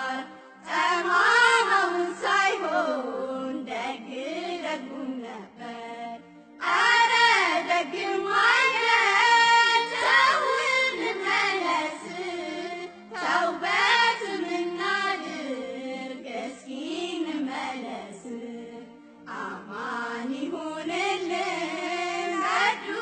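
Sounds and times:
person singing devotional chant: 0.0s - 23.0s.

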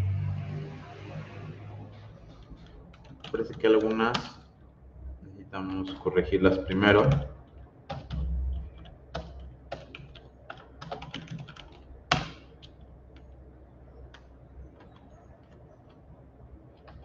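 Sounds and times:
computer keyboard typing: 2.3s - 4.3s, 7.0s - 17.0s.

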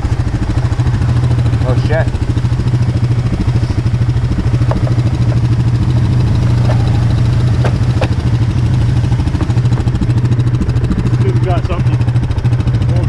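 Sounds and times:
engine idling: 0.0s - 13.0s
sharp knocks: 4.4s - 10.5s.

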